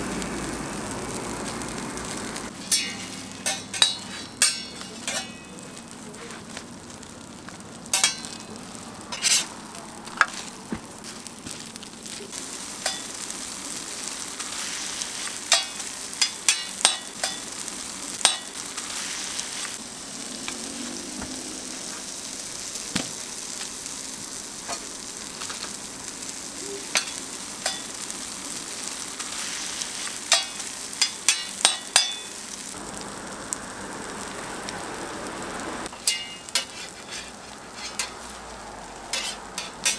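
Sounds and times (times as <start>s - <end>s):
food sizzling on griddle: 0.0s - 39.9s
spatula clicking on griddle: 15.4s - 17.4s, 39.1s - 39.9s.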